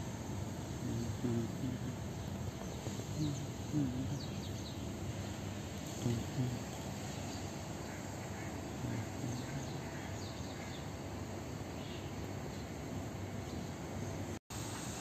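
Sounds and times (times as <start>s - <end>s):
low rumble and hiss: 0.0s - 15.0s
faint bird chirps: 0.8s - 4.9s.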